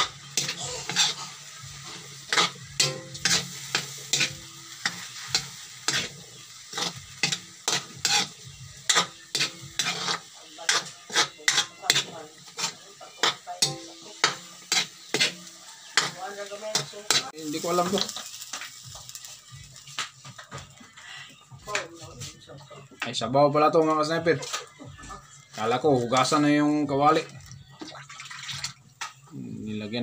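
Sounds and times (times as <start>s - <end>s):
metal spatula scraping a wok: 0.0s - 19.4s, 24.4s - 24.9s
food sizzling: 0.0s - 29.7s.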